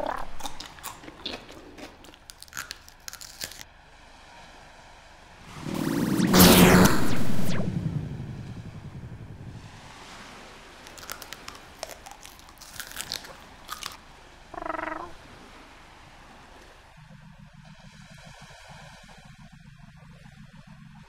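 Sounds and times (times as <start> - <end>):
crisp crunching: 0.4 - 3.6, 10.8 - 14.0
short pitched sound: 5.5 - 9.6.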